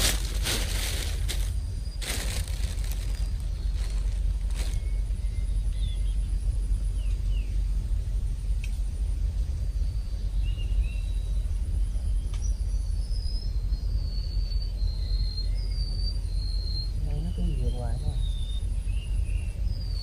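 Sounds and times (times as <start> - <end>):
small birds chirping: 0.0 - 7.8, 8.4 - 20.0
low outdoor rumble: 0.0 - 20.0.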